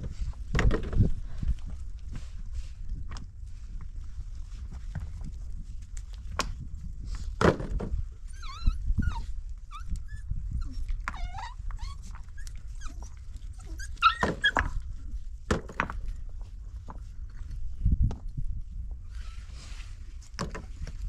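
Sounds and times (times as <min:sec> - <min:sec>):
dog whining: 0:08.2 - 0:14.8.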